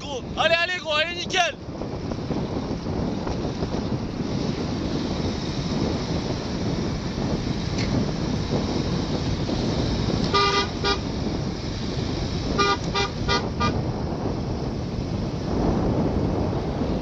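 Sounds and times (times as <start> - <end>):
car engine and road noise: 0.0 - 17.0
car horn beeping: 10.3 - 11.1, 12.5 - 13.8.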